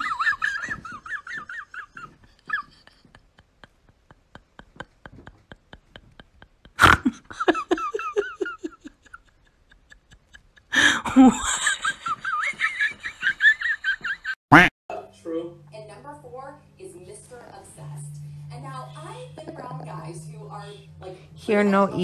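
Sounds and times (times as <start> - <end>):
person laughing hard: 0.0 - 14.4.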